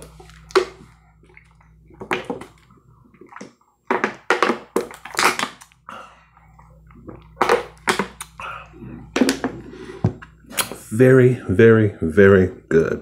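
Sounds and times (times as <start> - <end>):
person gulping: 0.0 - 3.9, 5.8 - 10.5.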